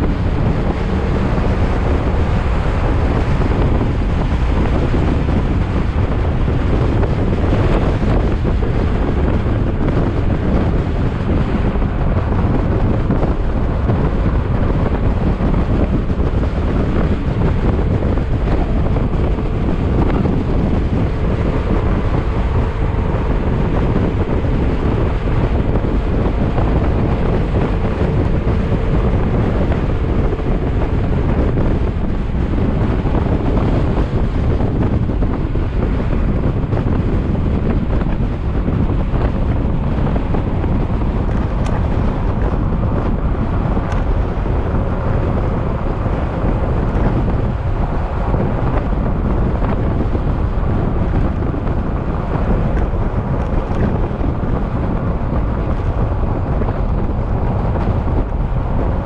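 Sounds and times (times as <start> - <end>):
wind noise on microphone: 0.0 - 59.0
scooter engine running: 11.6 - 35.4.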